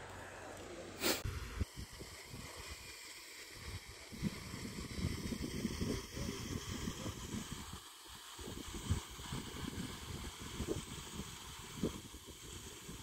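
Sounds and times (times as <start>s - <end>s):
wind buffeting microphone: 3.5s - 13.0s.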